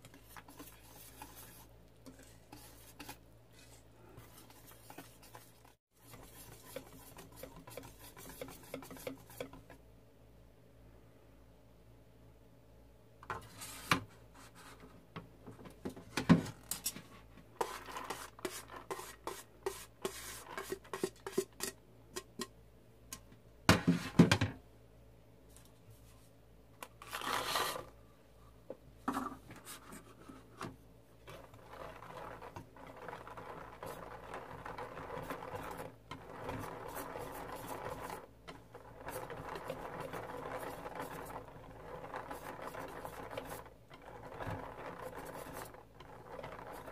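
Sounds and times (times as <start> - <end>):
batter stirring swish: 0.0 - 9.8, 17.6 - 21.8, 31.3 - 46.9
whisk clinking against metal bowl: 6.1 - 9.6.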